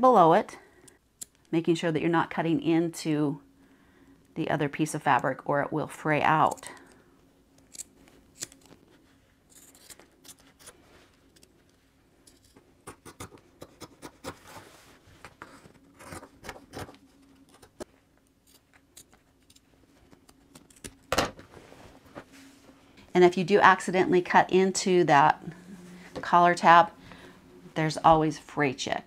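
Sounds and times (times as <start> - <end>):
scissors snipping cloth: 7.6 - 8.6, 20.2 - 21.0
cloth being handled: 21.4 - 22.9.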